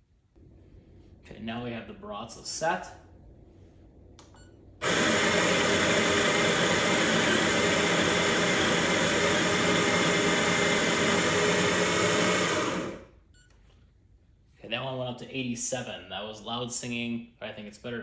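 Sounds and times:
coffee grinder whirring: 0:04.8 - 0:13.1.

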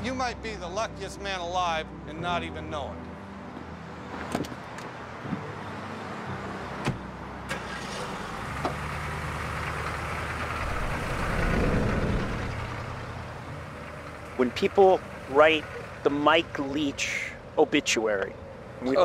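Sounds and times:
car engine running: 0:07.6 - 0:17.0
low rumble: 0:10.3 - 0:14.4.

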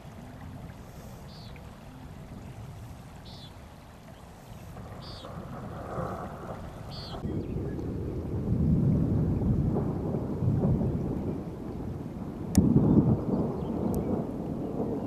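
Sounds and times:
low rumbling thunder: 0:04.6 - 0:15.0.

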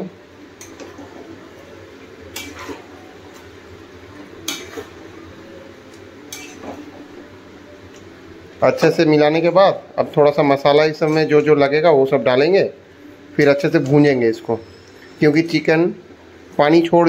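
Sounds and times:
metal spoon clinking on pan: 0:02.3 - 0:02.7, 0:06.3 - 0:06.7.

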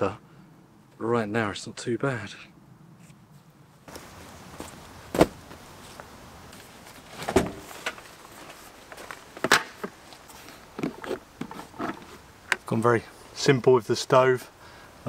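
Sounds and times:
camping gear knocking and clunking: 0:03.9 - 0:05.6, 0:06.9 - 0:12.7.

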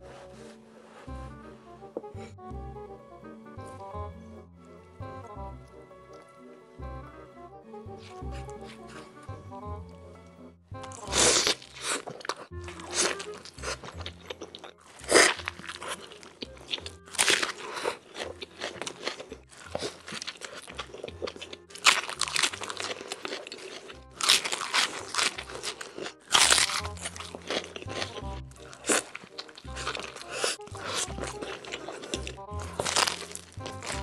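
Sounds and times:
biting and chewing burger: 0:07.9 - 0:09.4, 0:10.8 - 0:34.0
loud crunches: 0:10.9 - 0:34.0
crisp bites into raw onion: 0:28.6 - 0:34.0.

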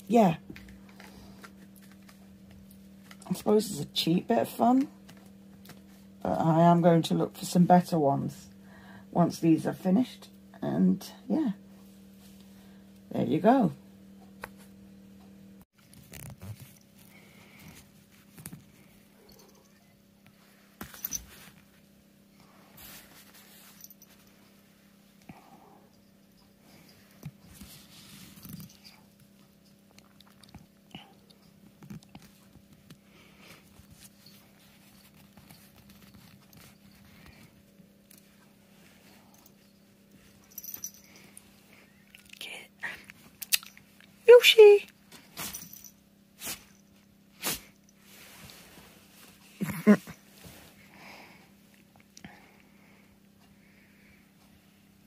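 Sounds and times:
low steady hum: 0:00.0 - 0:55.0
bedding rustling: 0:45.2 - 0:50.9.

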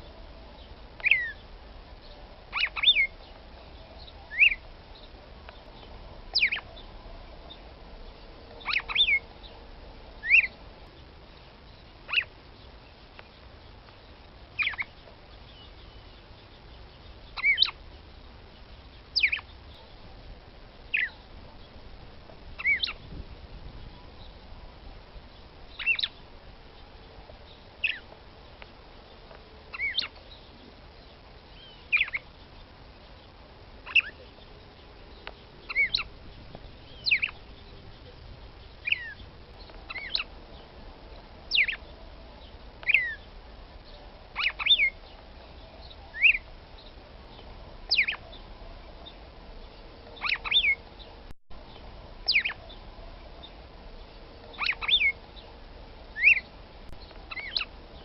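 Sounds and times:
bird call notes falling in pitch: 0:54.5 - 0:55.2, 0:57.3 - 0:58.0.

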